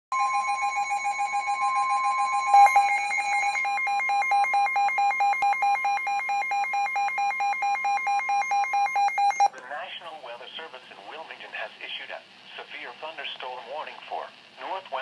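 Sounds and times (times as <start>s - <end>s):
pulsing alarm beeps: 0.1s - 9.5s
warning alarm tone: 0.1s - 9.5s.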